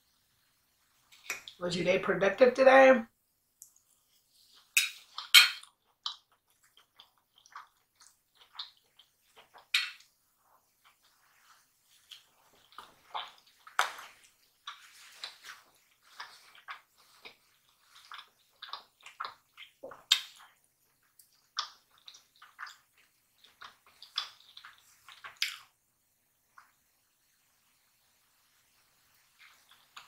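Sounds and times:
chewing crunchy fried chicken: 3.7 - 25.8, 29.2 - 30.0.

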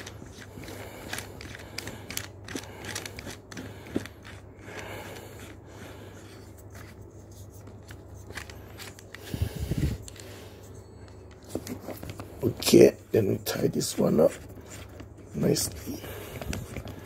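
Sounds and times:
handling clicks and scrapes: 0.0 - 12.8
low steady hum: 0.0 - 17.0.

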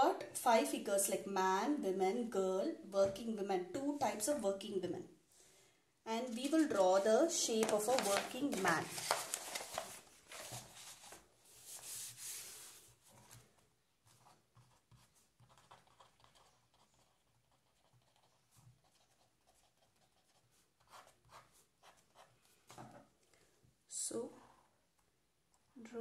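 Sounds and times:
soft rustle: 7.8 - 13.7
marker pen scratching on paper: 14.0 - 23.0.

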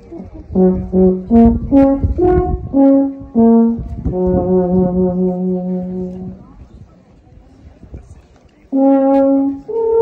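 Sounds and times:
horn playing slow tune: 0.1 - 6.5, 8.7 - 10.0.

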